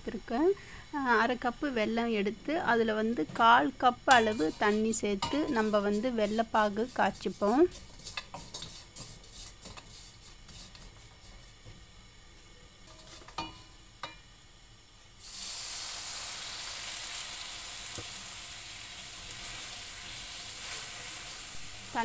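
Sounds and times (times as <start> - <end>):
water sizzling in hot pan: 3.2 - 22.0
spatula scraping in a wok: 4.0 - 11.7, 12.8 - 13.6, 15.6 - 22.0.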